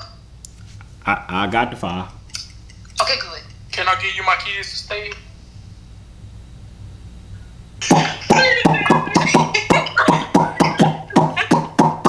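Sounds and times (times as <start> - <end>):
man beatboxing: 8.9 - 9.6.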